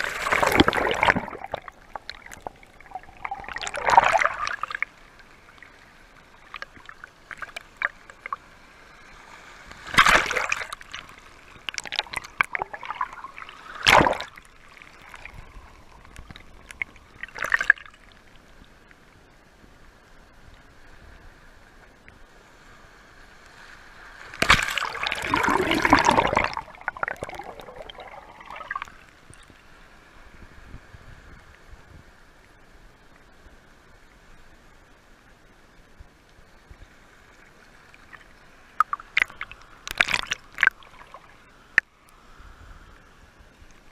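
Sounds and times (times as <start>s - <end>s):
shallow water washing over sand: 0.0s - 18.0s, 23.2s - 31.4s
water splashing surges: 0.0s - 18.4s, 23.8s - 29.4s, 37.5s - 42.0s.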